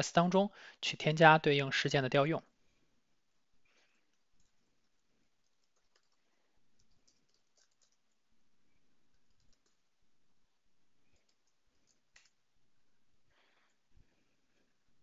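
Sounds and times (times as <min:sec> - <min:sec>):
keyboard typing: 0:04.1 - 0:08.3, 0:08.9 - 0:10.0, 0:11.0 - 0:12.5.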